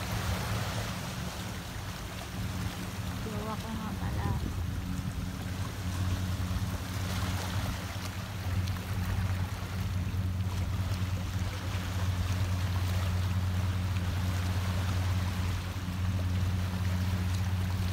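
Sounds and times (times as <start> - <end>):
steady low hum: 0.0 - 17.9
waves lapping over rocks: 0.0 - 17.9.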